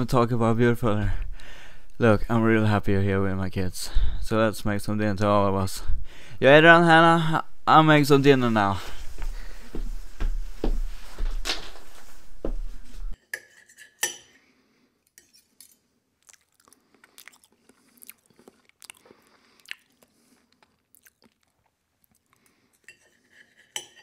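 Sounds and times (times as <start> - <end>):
dishes and cutlery clattering: 13.2 - 14.4, 22.9 - 24.0
plates and utensils clinking: 22.9 - 24.0.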